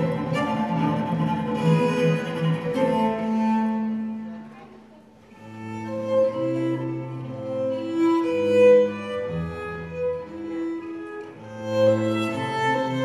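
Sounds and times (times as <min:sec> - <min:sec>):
bowed strings playing: 0:00.0 - 0:04.5, 0:05.3 - 0:13.0.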